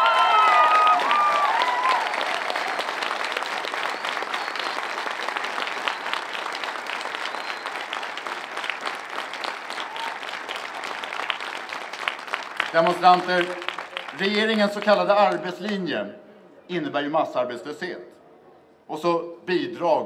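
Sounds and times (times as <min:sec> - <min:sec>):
crowd applauding: 0:00.0 - 0:15.9.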